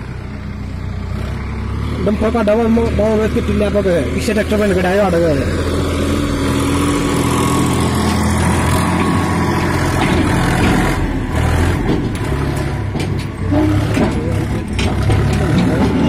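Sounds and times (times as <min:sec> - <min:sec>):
tractor diesel engine under load: 0:00.0 - 0:16.0
clatters: 0:08.0 - 0:16.0.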